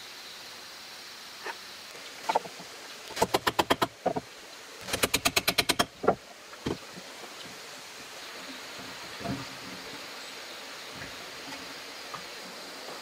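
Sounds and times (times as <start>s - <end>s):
sharp taps on wood: 3.2s - 4.3s, 4.9s - 6.8s.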